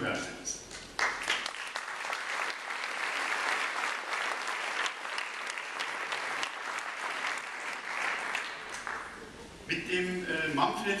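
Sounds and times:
audience applauding: 1.0s - 9.4s.

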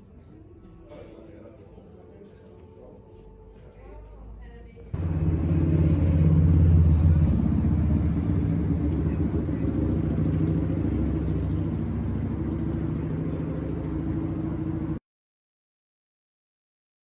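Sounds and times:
vehicle engine rumble: 5.0s - 15.0s.

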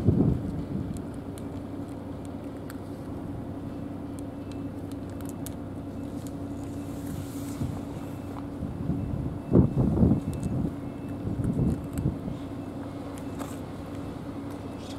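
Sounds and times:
wind buffeting microphone: 0.0s - 1.2s, 8.5s - 12.4s
engine humming: 0.0s - 14.9s.

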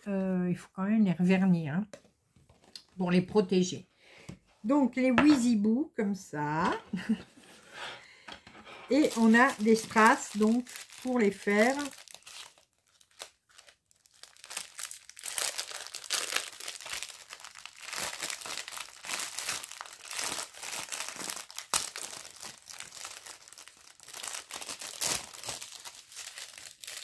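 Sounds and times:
packaging crinkling: 8.9s - 27.0s.

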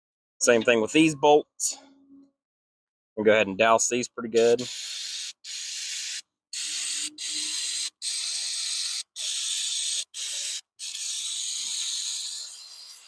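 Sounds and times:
aerosol spray hissing: 4.5s - 13.0s.

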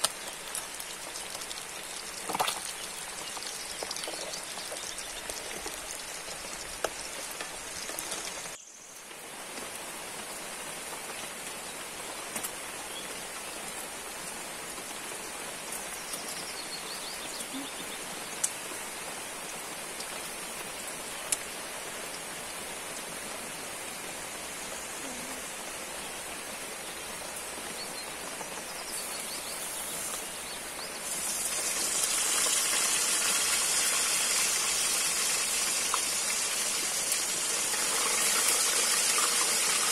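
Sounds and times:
fish sizzling in hot oil: 0.0s - 8.6s, 31.0s - 39.9s.

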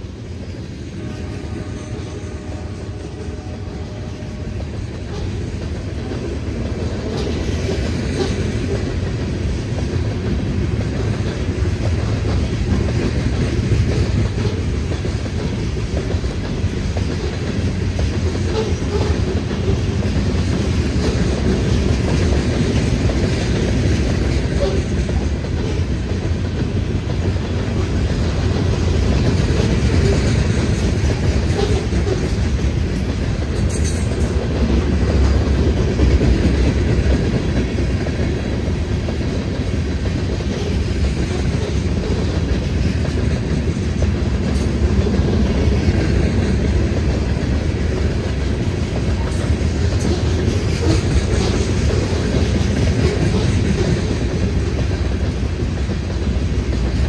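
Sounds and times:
freight train wheels rumbling: 0.0s - 57.0s.

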